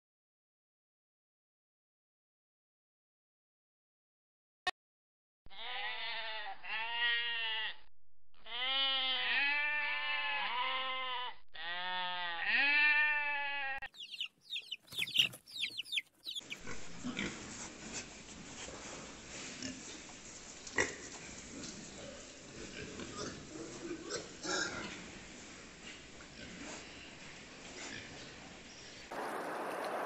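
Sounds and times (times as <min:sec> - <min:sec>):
sheep bleating: 0:05.5 - 0:13.9
pigs squealing and grunting: 0:16.5 - 0:17.5.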